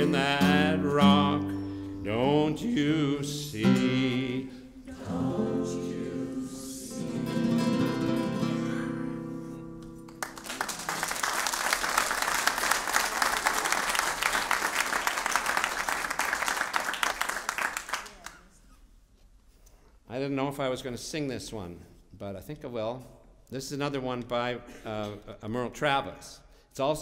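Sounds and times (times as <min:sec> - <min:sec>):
person singing: 0:00.0 - 0:09.4
classical guitar chord: 0:06.9 - 0:10.3
audience applause: 0:10.1 - 0:18.4.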